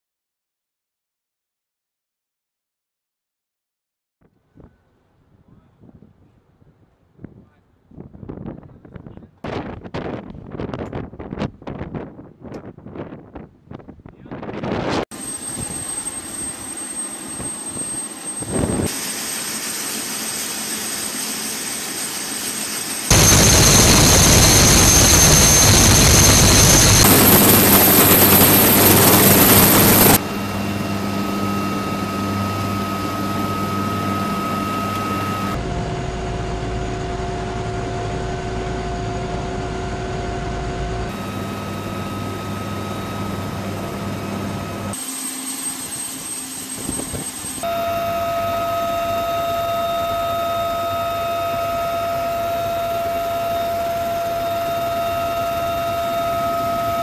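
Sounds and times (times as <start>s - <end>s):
helicopter engines and rotors: 14.5s - 57.0s.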